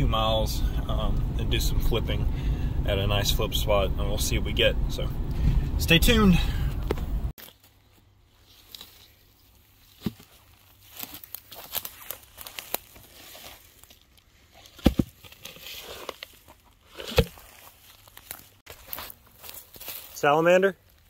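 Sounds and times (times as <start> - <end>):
dry pine straw rustling: 7.4 - 14.8, 15.5 - 21.0.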